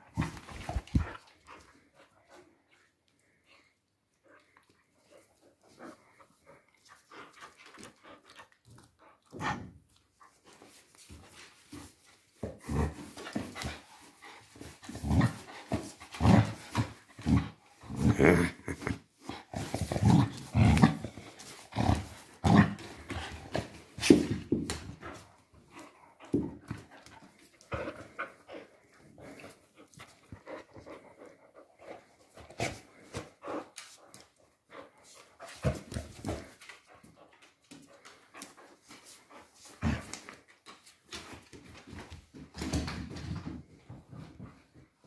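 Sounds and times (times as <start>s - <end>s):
dog scuffling and growling in play: 0.0s - 45.0s.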